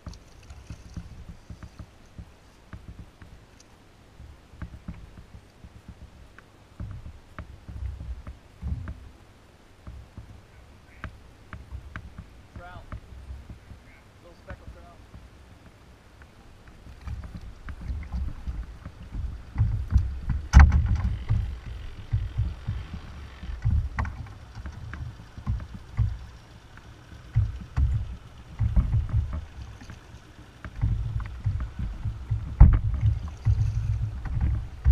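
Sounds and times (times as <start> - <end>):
thuds on plastic kayak hull: 17.0 - 26.3, 27.3 - 30.0, 30.6 - 34.9.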